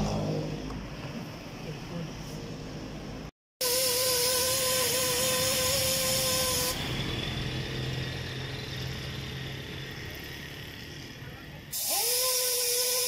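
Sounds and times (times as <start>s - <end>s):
air hissing: 3.6s - 11.1s, 11.7s - 13.0s
air grinder whining: 3.6s - 13.0s.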